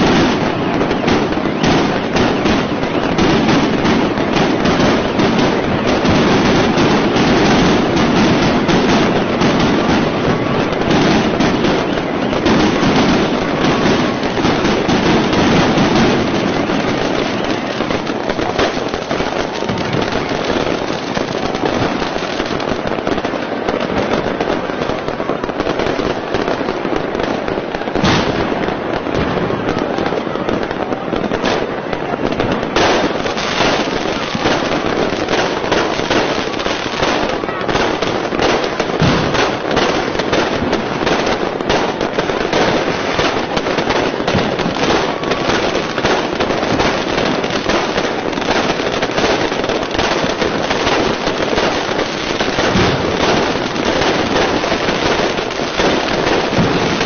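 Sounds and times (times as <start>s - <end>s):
fireworks crackling and banging: 0.0s - 57.0s
sharp firework bang: 28.0s - 30.0s, 38.8s - 39.6s, 52.6s - 54.2s, 56.5s - 57.0s.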